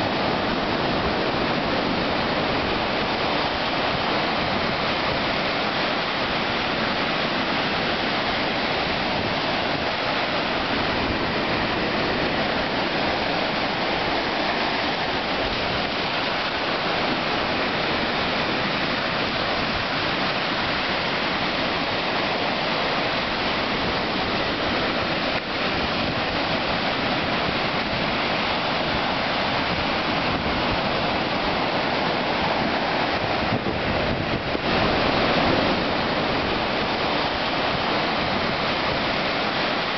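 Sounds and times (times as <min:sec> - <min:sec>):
waves breaking on sandy beach: 0:00.0 - 0:39.9.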